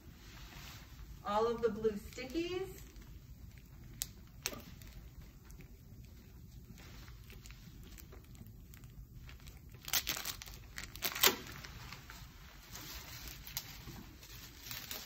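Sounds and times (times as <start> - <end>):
plastic crinkling and tearing: 6.6 - 15.0.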